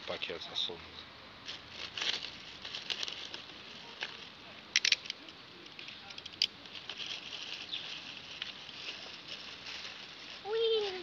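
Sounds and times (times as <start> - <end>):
plastic and bubble wrap crinkling: 1.5 - 4.3, 6.7 - 11.0.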